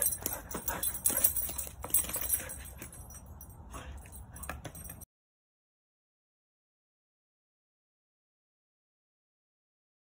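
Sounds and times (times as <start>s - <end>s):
dog clicking on paving tiles: 0.0s - 3.2s
faint jingling: 0.0s - 5.1s.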